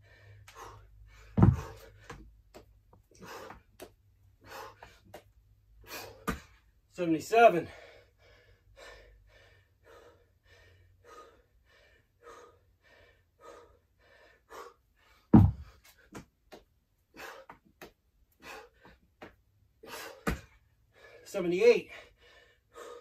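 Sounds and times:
man panting hard: 0.0 - 2.3, 3.1 - 5.2, 5.8 - 6.6, 7.5 - 16.2, 17.1 - 17.7, 18.4 - 19.1, 19.8 - 23.0
dumbbells thudding on floor mat: 1.2 - 2.6, 6.2 - 6.6, 15.3 - 16.6, 20.1 - 20.6.

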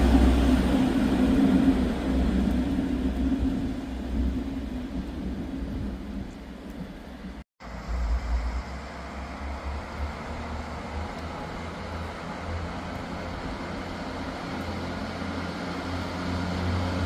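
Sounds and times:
faint low rumble: 0.0 - 12.2.

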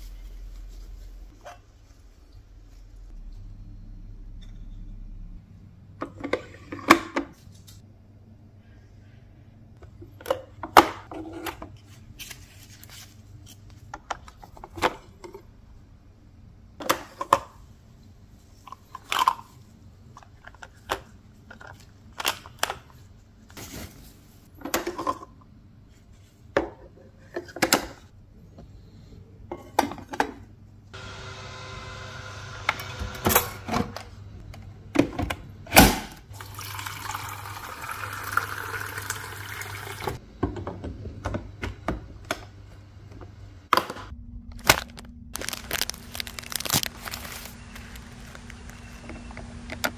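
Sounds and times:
tap water filling tank: 36.4 - 40.2.

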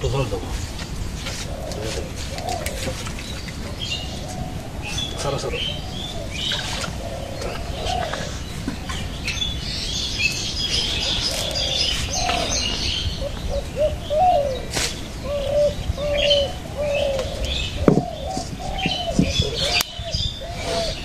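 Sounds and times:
birds chirping: 0.0 - 21.0
birds making low repeated calls: 0.0 - 21.0
sharp knocks: 17.8 - 19.4.

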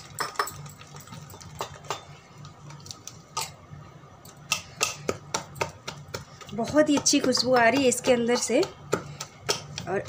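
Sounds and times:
batter slapping against a bowl: 4.5 - 10.0.

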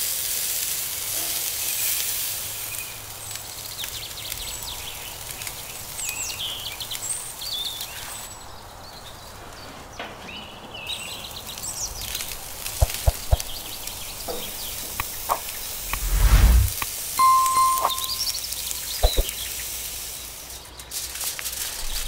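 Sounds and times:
meat sizzling on a grill: 0.0 - 8.3, 19.4 - 22.0.

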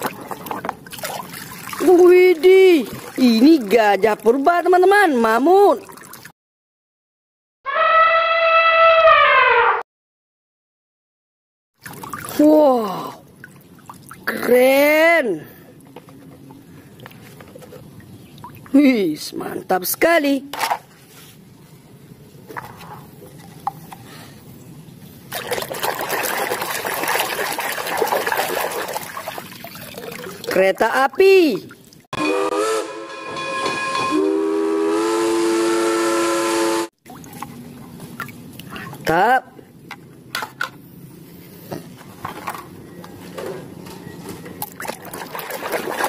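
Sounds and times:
water sloshing in a plastic basin: 0.0 - 6.3, 11.8 - 14.7, 15.6 - 19.0, 25.2 - 32.1, 37.0 - 39.3, 44.2 - 46.0.

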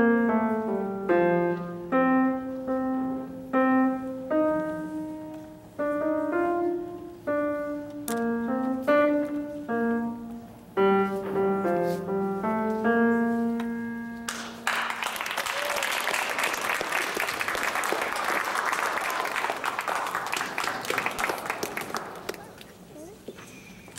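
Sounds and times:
grand piano playing: 0.0 - 15.3
audience applause: 14.3 - 22.6.

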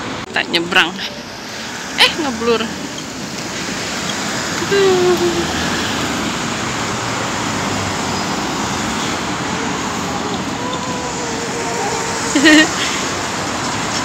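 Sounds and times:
road traffic: 0.0 - 14.0.

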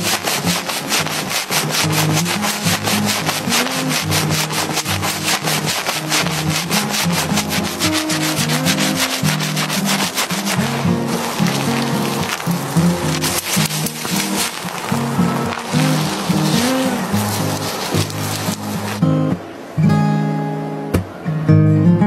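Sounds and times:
fingers scrubbing lathered hair: 0.0 - 19.0.

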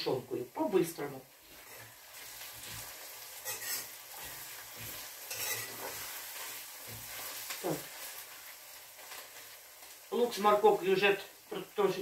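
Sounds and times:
vegetables sizzling in a pot: 0.0 - 12.0
metal spoon scraping a pot: 1.5 - 2.0, 3.4 - 6.3.

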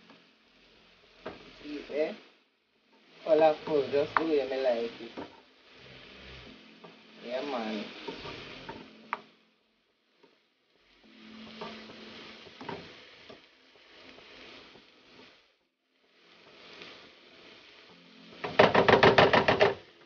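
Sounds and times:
peppers sizzling in a frying pan: 0.0 - 20.0
spatula scraping a pan: 3.0 - 9.3, 10.1 - 15.5, 16.1 - 20.0
rapid sharp knocks: 18.4 - 19.8.

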